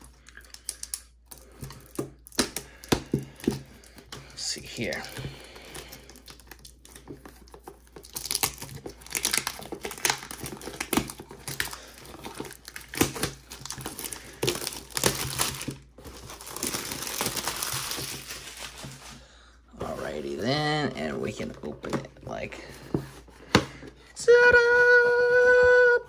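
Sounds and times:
plastic shrink-wrap tearing and crinkling: 5.8s - 19.2s.

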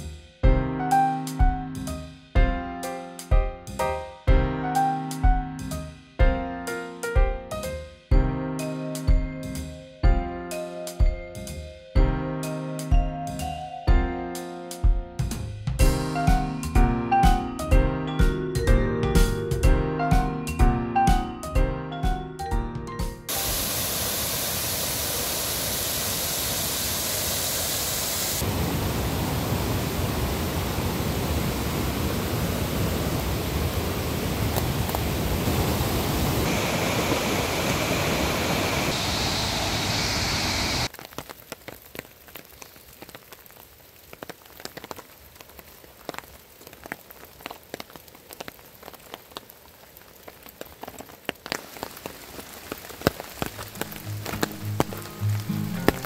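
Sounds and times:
waterfall rushing: 23.3s - 40.9s.

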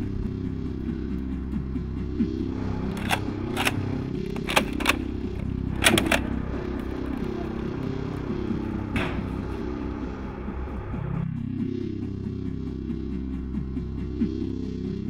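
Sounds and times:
low-pitched music: 0.0s - 15.0s
toy blaster clacking: 2.9s - 3.8s, 4.4s - 5.1s, 5.8s - 6.3s.

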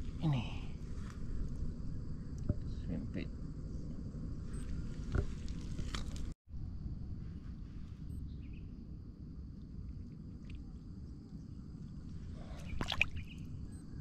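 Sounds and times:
low background rumble: 0.0s - 14.0s
hand splashing in water: 12.7s - 13.2s.

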